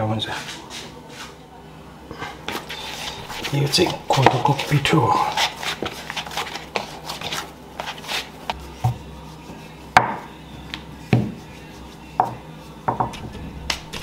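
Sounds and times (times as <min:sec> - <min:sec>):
hands kneading dough in a bowl: 0:02.3 - 0:10.0.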